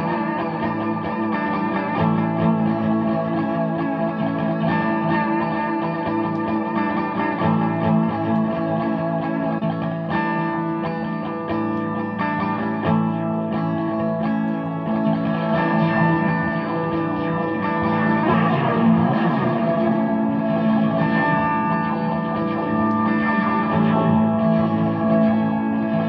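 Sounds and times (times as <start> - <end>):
electric guitar notes ringing: 0.0 - 26.0.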